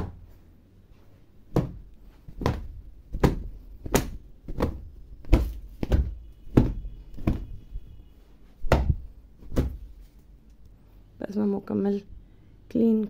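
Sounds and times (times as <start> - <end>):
sofa being beaten with dull thumps: 0.0 - 0.3, 1.5 - 7.8, 8.6 - 10.0.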